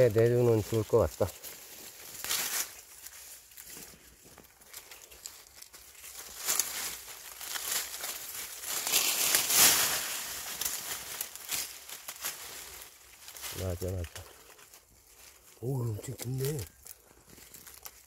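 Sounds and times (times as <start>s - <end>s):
hands digging through dry leaves: 0.0s - 18.0s.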